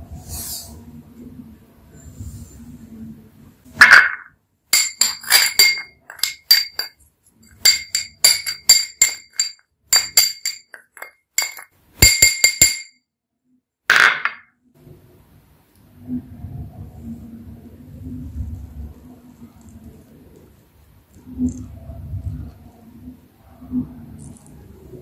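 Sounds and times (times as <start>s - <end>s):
metal spoon clinking against glass bowl: 4.8s - 12.9s.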